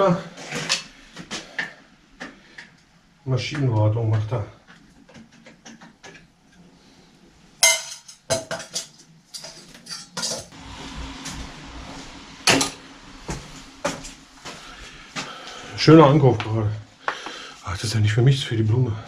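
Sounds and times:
metal tools clinking: 7.6 - 10.5.

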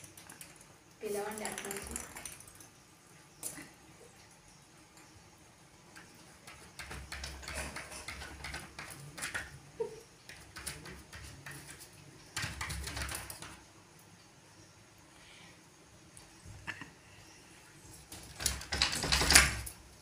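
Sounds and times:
dog claws scraping wooden door: 6.0 - 9.6, 10.3 - 13.6, 18.1 - 19.8.

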